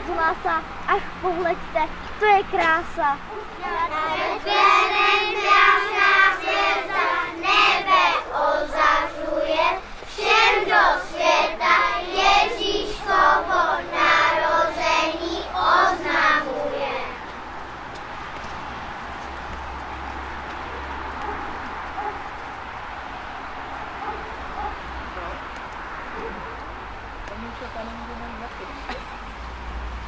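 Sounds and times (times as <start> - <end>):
children singing together: 3.6 - 17.3.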